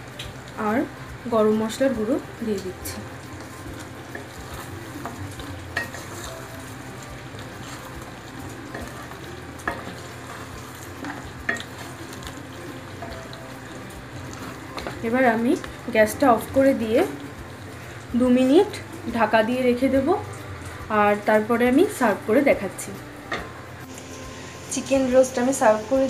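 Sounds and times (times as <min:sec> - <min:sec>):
gravy sizzling in a pan: 0:00.0 - 0:26.0
spatula tapping a pan: 0:03.4 - 0:06.7, 0:07.4 - 0:13.7, 0:14.3 - 0:15.0
spatula scraping a pan: 0:03.5 - 0:06.8, 0:07.4 - 0:12.4.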